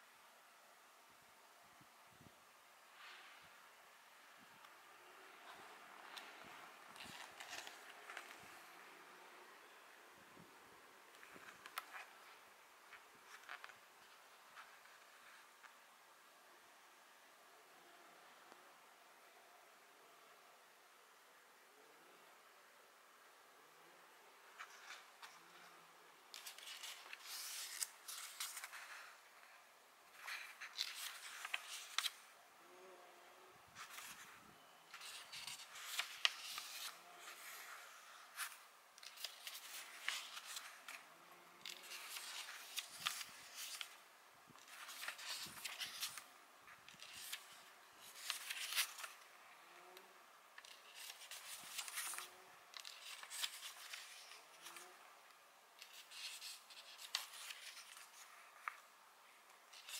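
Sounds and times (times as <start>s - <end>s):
paper pages turning: 5.4s - 8.6s, 11.1s - 15.8s, 26.3s - 32.3s, 33.8s - 44.0s, 44.6s - 49.3s, 50.6s - 55.0s, 55.8s - 58.9s, 59.7s - 59.9s.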